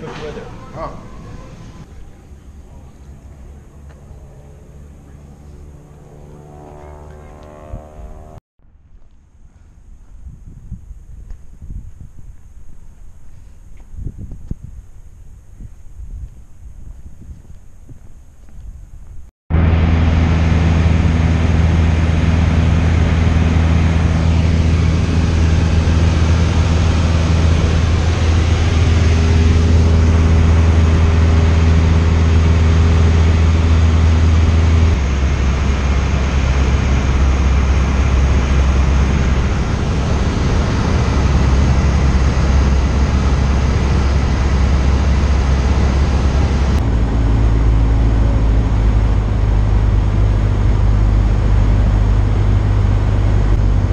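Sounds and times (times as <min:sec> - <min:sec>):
airplane engine droning: 0:00.0 - 0:08.8, 0:19.5 - 0:53.9.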